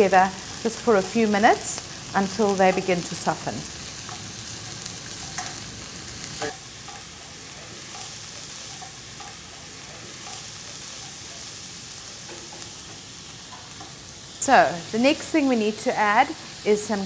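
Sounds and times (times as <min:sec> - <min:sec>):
vegetables sizzling in hot oil: 0:00.0 - 0:17.0
spoon striking a pan: 0:05.2 - 0:05.6, 0:06.4 - 0:11.2, 0:12.2 - 0:14.0.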